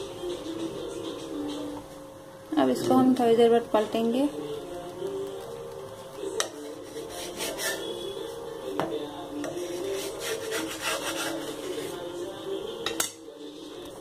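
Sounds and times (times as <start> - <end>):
spatula scraping iron griddle: 6.5 - 8.1, 9.4 - 12.1.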